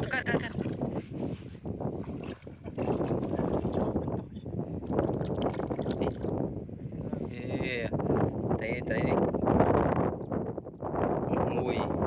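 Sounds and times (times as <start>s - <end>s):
muddy water splashing: 0.0s - 1.2s, 1.8s - 6.5s.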